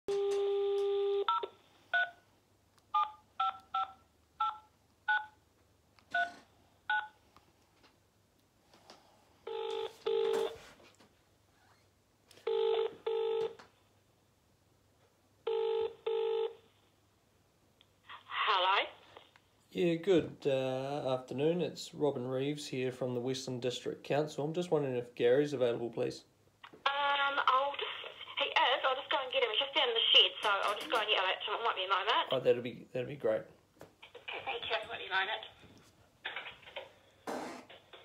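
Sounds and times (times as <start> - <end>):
phone dial tone: 0.1 - 2.2, 9.5 - 10.6, 12.4 - 13.6, 15.5 - 16.6
phone ringback tone: 0.1 - 2.2, 9.5 - 10.6, 12.4 - 13.6, 15.4 - 16.6.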